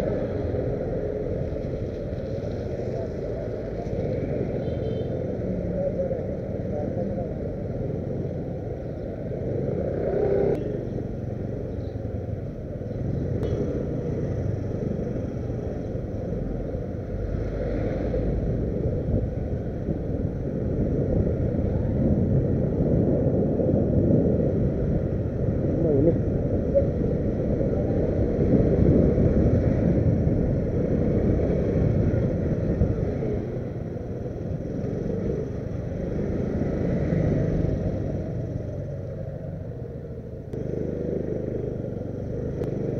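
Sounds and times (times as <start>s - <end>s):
wind and road noise: 0.0s - 42.9s
motorcycle engine running: 32.3s - 42.9s.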